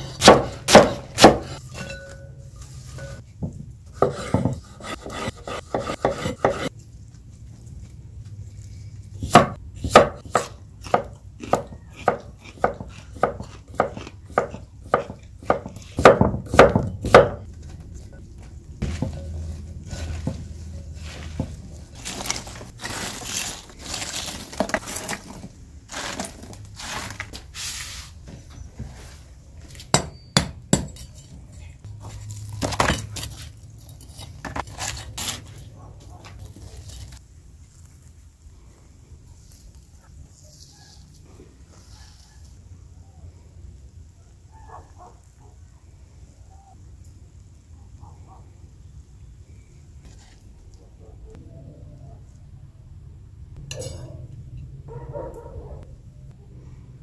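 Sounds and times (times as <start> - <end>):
knife chopping on wooden board: 0.0 - 1.6, 4.0 - 6.7, 9.2 - 17.5
scraping of charcoal ash: 0.0 - 3.3, 17.4 - 29.9, 31.0 - 42.7.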